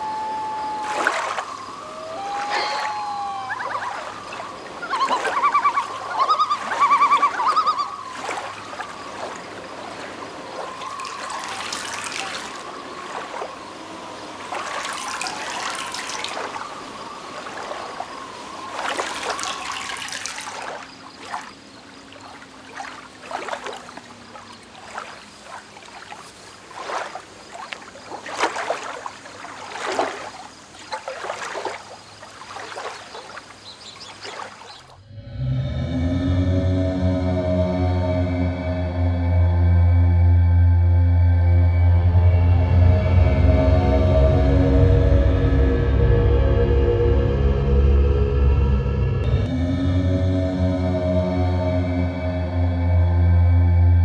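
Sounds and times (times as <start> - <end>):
water splashing from hands: 0.0 - 13.6, 14.4 - 34.9
stream water trickling: 0.0 - 35.0
small splashes and drips: 0.9 - 1.5, 3.5 - 13.6, 14.3 - 35.0.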